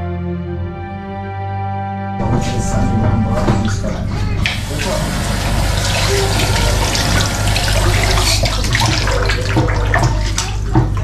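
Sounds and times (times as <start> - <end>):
meat rinsed by hand in a pan: 3.4 - 11.0
tap running into a sink: 3.4 - 11.0.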